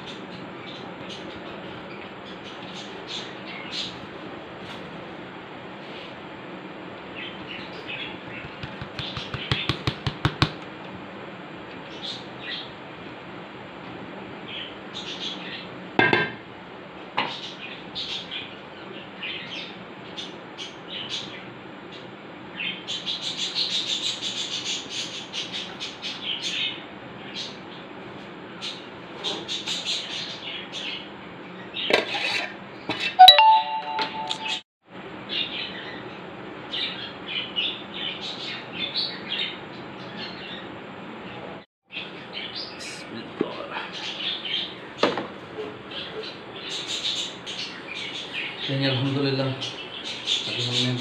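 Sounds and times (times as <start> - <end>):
birds chirping: 7.1 - 9.9.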